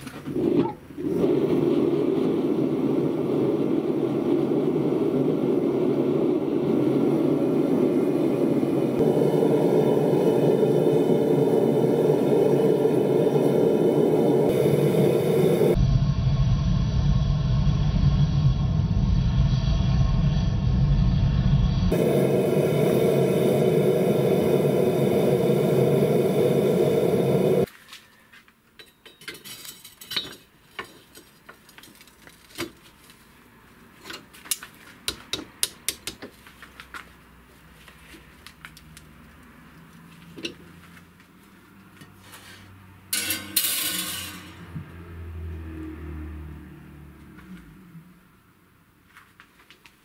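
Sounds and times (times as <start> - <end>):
electric oven humming: 1.0 - 27.7
loud steady noise: 2.2 - 27.7.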